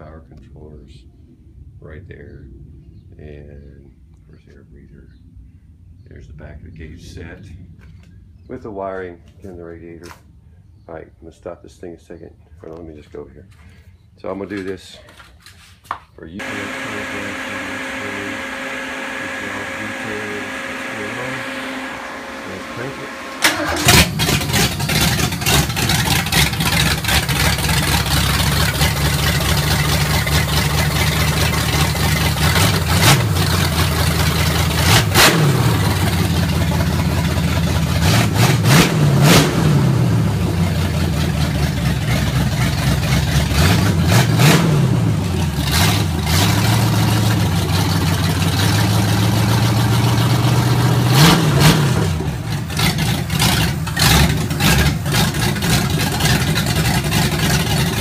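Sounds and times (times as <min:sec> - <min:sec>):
engine idling with throttle blips: 0:16.4 - 0:58.0.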